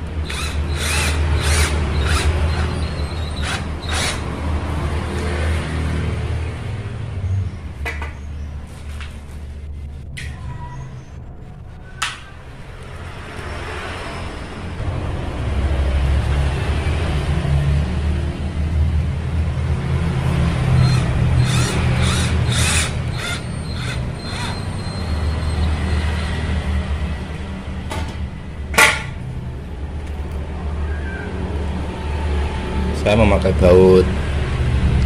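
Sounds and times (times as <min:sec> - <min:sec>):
cordless drill bursts: 0:00.2 - 0:04.3, 0:20.8 - 0:24.9.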